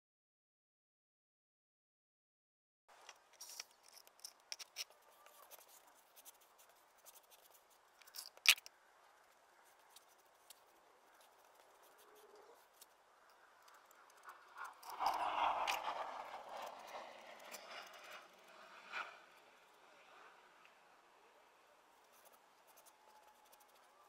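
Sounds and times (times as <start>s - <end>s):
gritty scraping of grout float: 14.5s - 19.2s.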